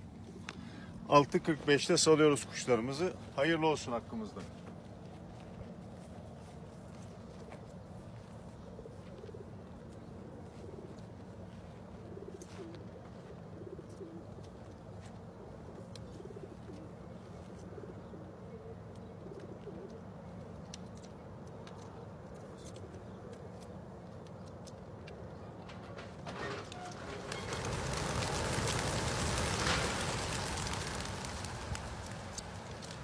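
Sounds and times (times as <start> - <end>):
pigeons cooing: 0.0 - 1.1, 6.8 - 20.9, 26.4 - 33.0.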